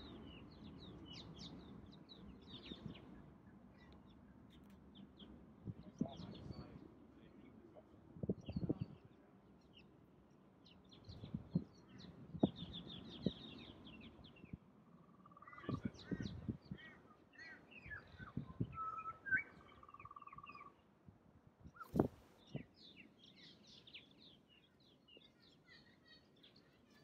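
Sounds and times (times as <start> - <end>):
bird whistled chirps: 18.7 - 20.5.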